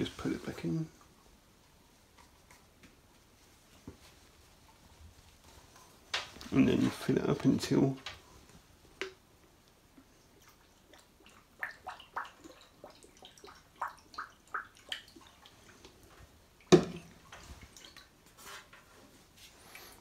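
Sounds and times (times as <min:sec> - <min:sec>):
liquid drips and splashes: 0:09.0 - 0:18.4.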